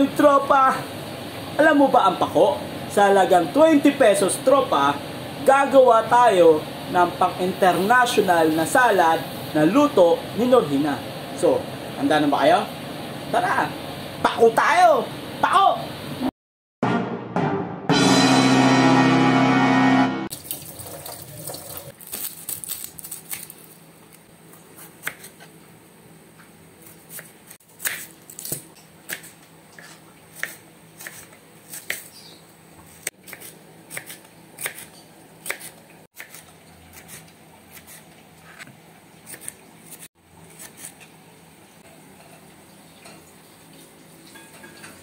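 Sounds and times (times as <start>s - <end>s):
knife slicing vegetables: 24.6s - 25.6s, 26.8s - 32.2s, 32.8s - 41.1s.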